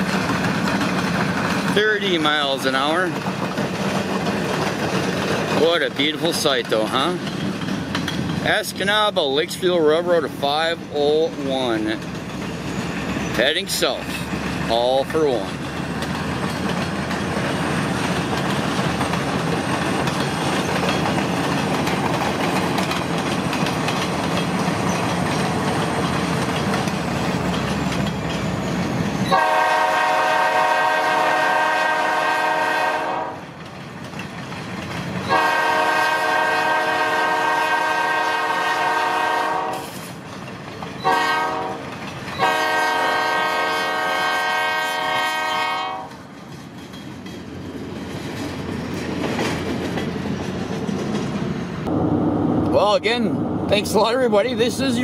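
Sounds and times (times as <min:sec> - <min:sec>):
rumbling road and train noise: 0:00.0 - 0:55.0
locomotive air horn blasts: 0:29.3 - 0:33.4, 0:35.3 - 0:40.0, 0:41.0 - 0:41.8, 0:42.4 - 0:46.1.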